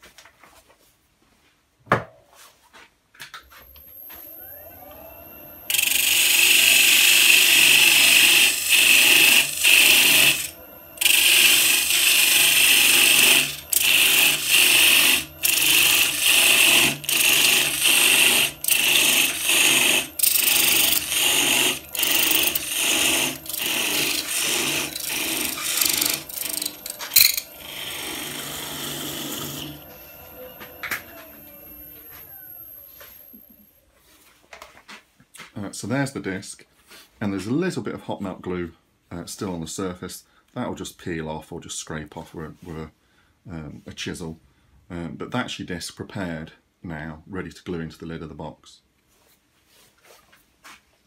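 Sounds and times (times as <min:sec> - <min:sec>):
wood lathe running: 0:03.6 - 0:33.3
tool scraping spinning wood: 0:03.6 - 0:33.4.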